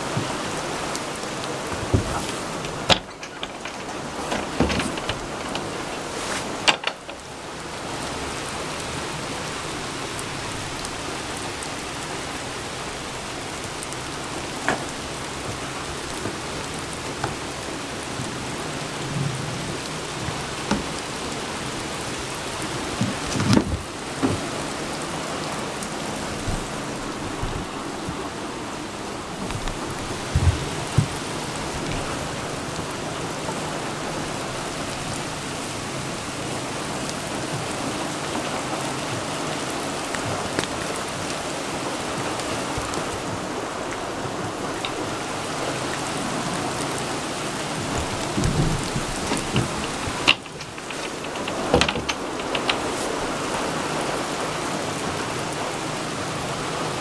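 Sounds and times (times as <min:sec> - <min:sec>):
steady rain falling: 0:00.0 - 0:57.0
short knocks and thumps: 0:01.7 - 0:07.2, 0:29.4 - 0:32.1.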